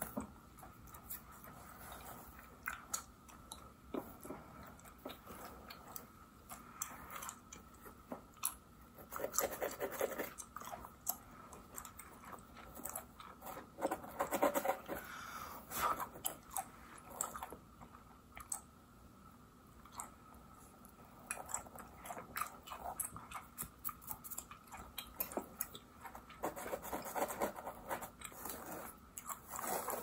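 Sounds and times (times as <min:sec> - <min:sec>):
gum chewing with wet smacks: 0:00.2 - 0:13.8, 0:16.0 - 0:18.8, 0:19.8 - 0:26.4.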